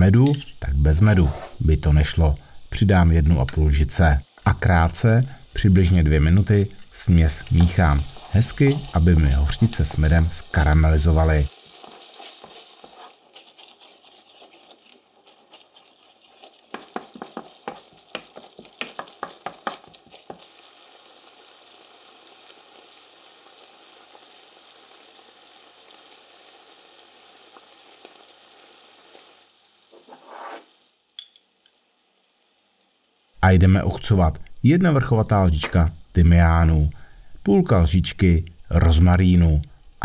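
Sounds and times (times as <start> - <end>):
onions sizzling in frying pan: 0.0 - 34.1
wooden spoon scraping pan: 1.0 - 1.7, 7.4 - 10.8, 11.6 - 20.4, 29.9 - 30.8.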